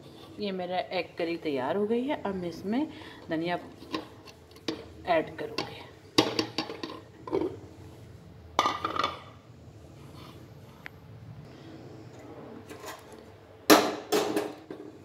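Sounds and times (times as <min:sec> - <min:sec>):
low steady hum: 0:00.0 - 0:13.8.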